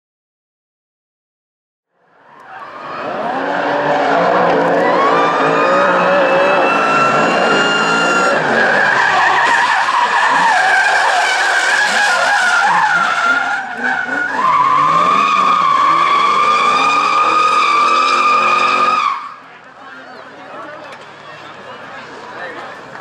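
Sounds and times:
car engines revving: 0:02.1 - 0:23.0
tyres squealing: 0:02.5 - 0:19.4.

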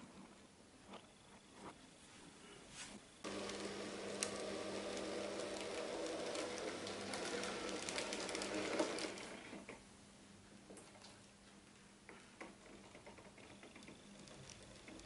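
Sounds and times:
model train motor hum: 0:03.2 - 0:09.6
wheels clicking over rail joints: 0:03.3 - 0:09.8, 0:12.4 - 0:15.0.

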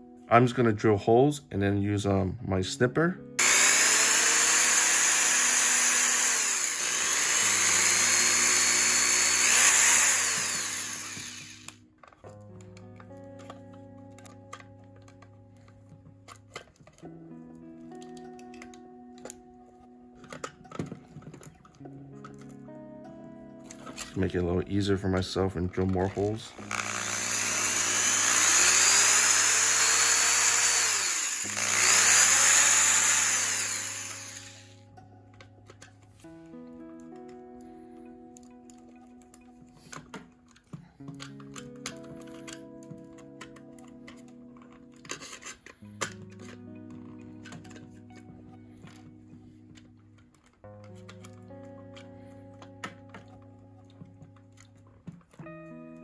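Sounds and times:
electric drill boring plastic: 0:03.4 - 0:11.8, 0:26.5 - 0:34.8.

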